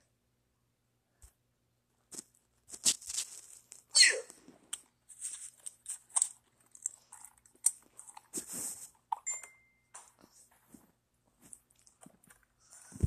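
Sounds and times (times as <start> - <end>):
crunching and chewing: 2.1 - 9.3, 11.4 - 13.0.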